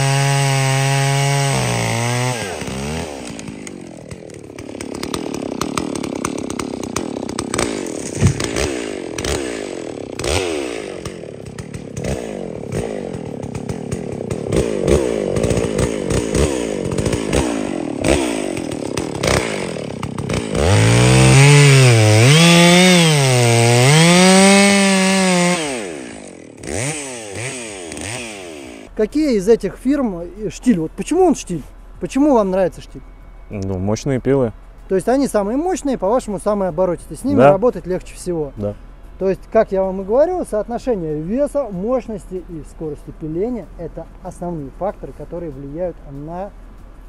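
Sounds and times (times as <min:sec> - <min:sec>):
chainsaws cutting wood: 0:00.0 - 0:28.9, 0:37.3 - 0:37.6
wood knocks and cracks: 0:08.0 - 0:08.7.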